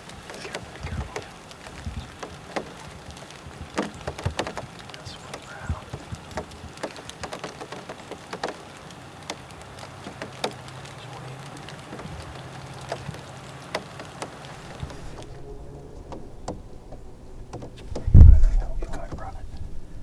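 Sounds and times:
sleet ticking on surfaces: 0.0 - 15.4, 16.0 - 19.3
faint low hum: 14.6 - 20.0.

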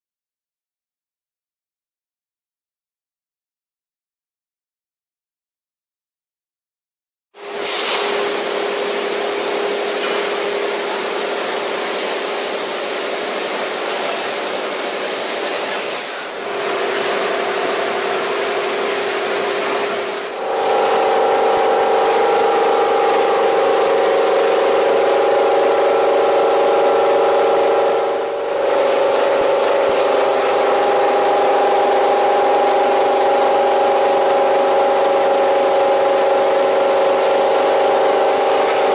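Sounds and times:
machine whirring: 7.4 - 38.9
hum-like tone: 16.6 - 38.9.

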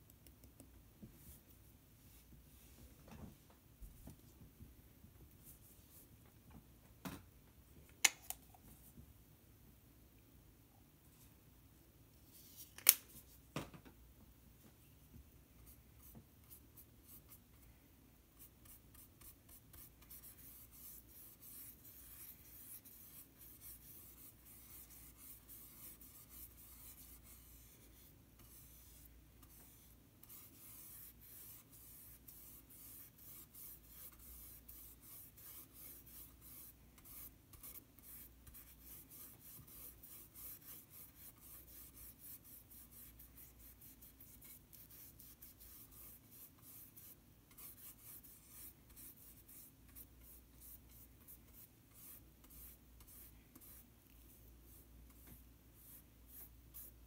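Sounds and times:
paintbrush scratchy strokes: 15.6 - 17.6, 18.3 - 57.0.

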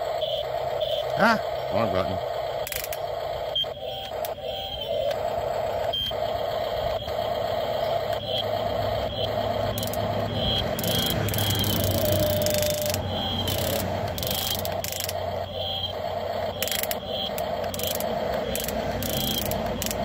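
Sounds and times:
electric motors whining: 0.0 - 20.0
short high beeps: 9.1 - 14.6.

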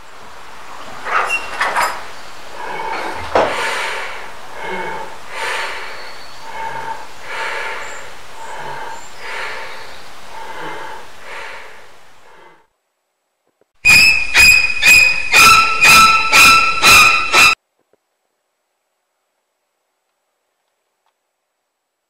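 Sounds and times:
breathing through gas mask: 2.5 - 12.7.

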